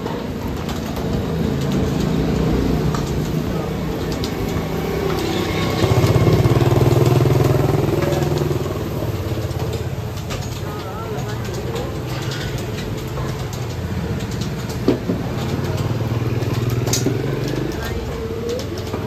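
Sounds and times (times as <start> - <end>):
street traffic engines passing: 0.0 - 19.0.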